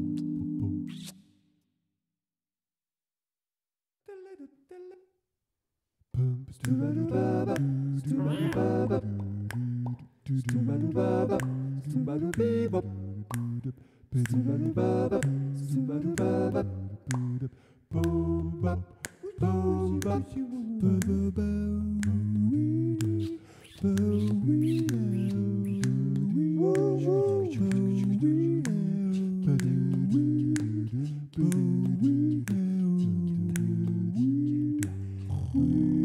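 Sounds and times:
sharp clicks: 23.0s - 26.9s.

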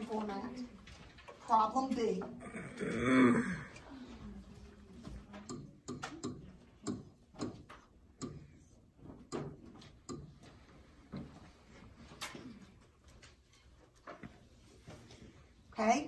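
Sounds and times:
small desk noises: 0.0s - 3.0s, 3.6s - 16.0s
pen tapping on whiteboard screen: 5.5s - 8.6s.

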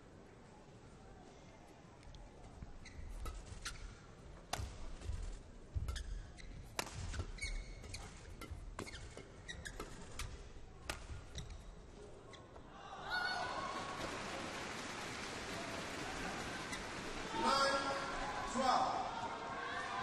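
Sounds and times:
shoes squeaking on court: 2.4s - 12.7s, 16.7s - 17.0s
racket striking shuttlecock: 4.5s - 11.6s.

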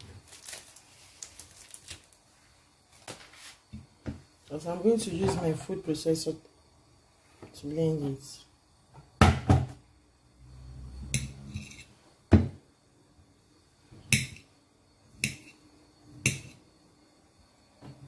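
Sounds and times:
kitchen items knocking on worktop: 9.2s - 9.8s.

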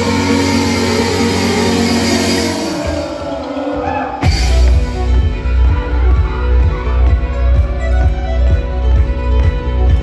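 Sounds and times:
drum kit: 0.0s - 9.1s
live band music with fiddle: 4.2s - 10.0s.

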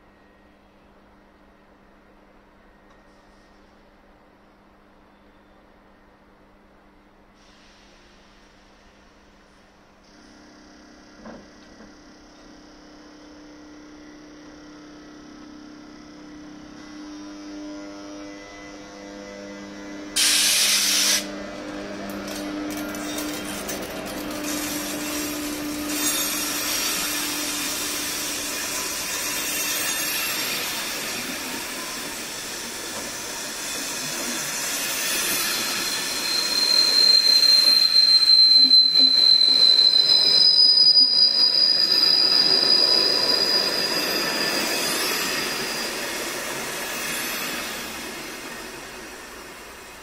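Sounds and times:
train wheels rolling on rails: 20.2s - 50.0s
wheels squealing: 21.0s - 49.9s.

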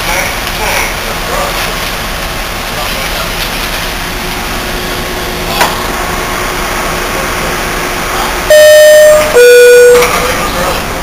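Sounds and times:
train humming: 0.0s - 11.0s
electronic door chime tones: 8.5s - 10.4s.

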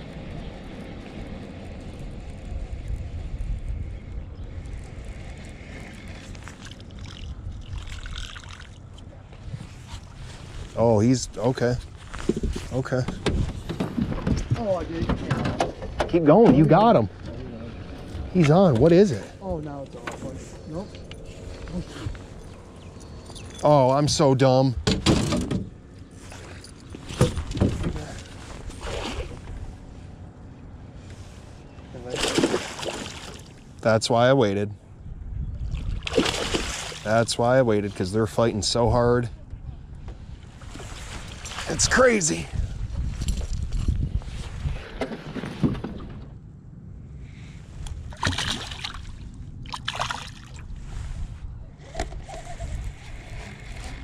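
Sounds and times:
low wind rumble on microphone: 0.0s - 32.2s, 33.5s - 54.0s
water splashing from a fish: 6.4s - 8.8s, 32.1s - 33.6s, 35.7s - 37.1s, 48.1s - 50.7s.

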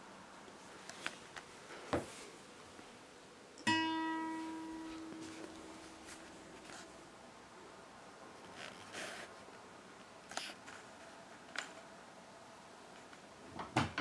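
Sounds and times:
classical guitar note ringing: 3.6s - 6.4s.

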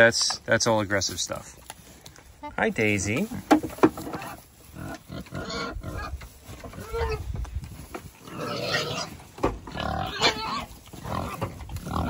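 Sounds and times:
pigs grunting: 3.2s - 7.3s, 8.2s - 12.0s.

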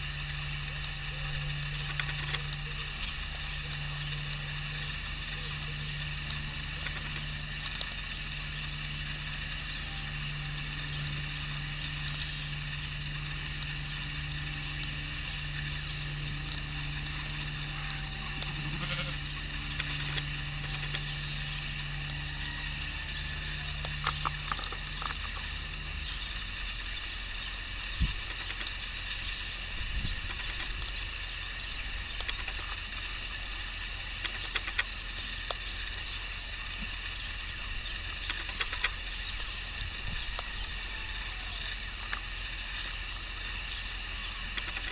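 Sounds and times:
steady low hum: 0.0s - 44.9s
sheep bleating: 18.4s - 19.2s.

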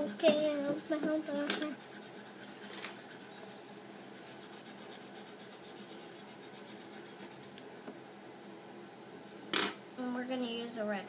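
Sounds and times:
pencil scratching on paper: 0.0s - 7.6s.

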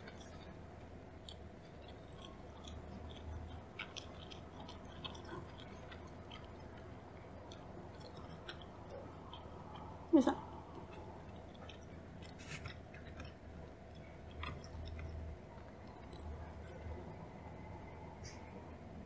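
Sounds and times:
wet chewing mouth clicks: 1.2s - 6.9s, 10.7s - 17.1s.

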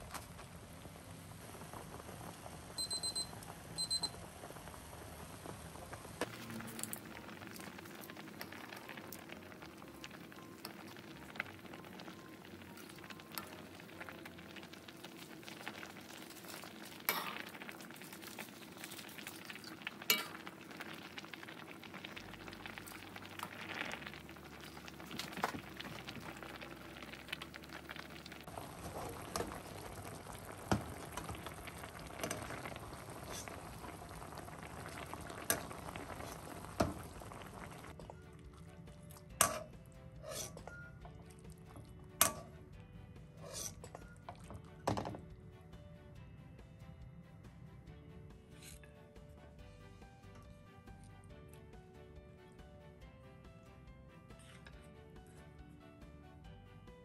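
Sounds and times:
liquid bubbling and sizzling: 0.0s - 45.8s, 49.5s - 52.0s, 54.3s - 55.6s
metal ladle clinking: 20.0s - 20.5s.

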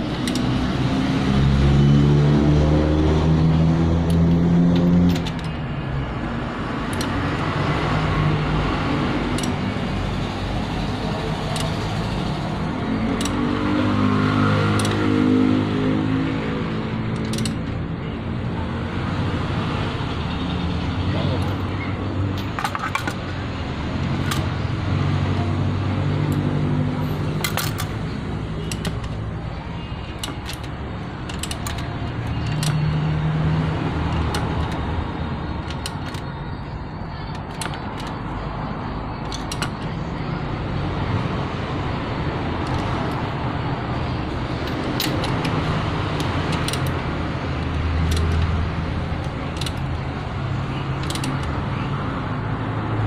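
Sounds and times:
socket wrench clicking on metal: 0.0s - 0.6s, 4.0s - 5.6s, 6.8s - 7.5s, 9.3s - 9.8s, 11.3s - 13.6s, 14.7s - 15.2s, 17.1s - 17.8s, 24.1s - 24.5s, 27.2s - 29.2s, 30.0s - 34.9s, 35.5s - 36.4s, 37.2s - 38.5s, 39.2s - 40.0s, 42.6s - 43.4s, 44.3s - 51.7s.

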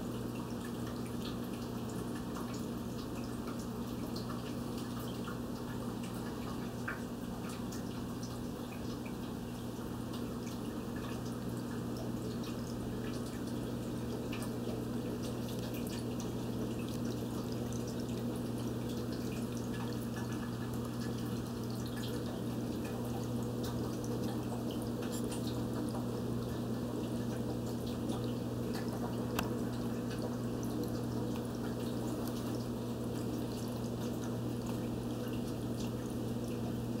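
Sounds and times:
aquarium filter humming: 0.0s - 37.0s
water trickling and dripping: 0.0s - 37.0s
bubble ticks: 11.0s - 36.8s.

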